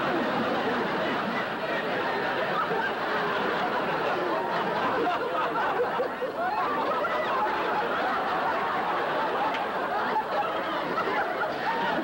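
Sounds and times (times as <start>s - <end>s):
audience laughing: 0.0s - 12.0s.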